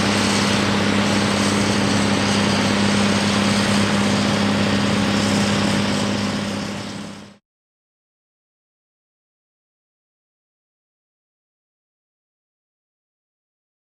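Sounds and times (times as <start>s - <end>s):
diesel engines droning under load: 0.0s - 7.4s.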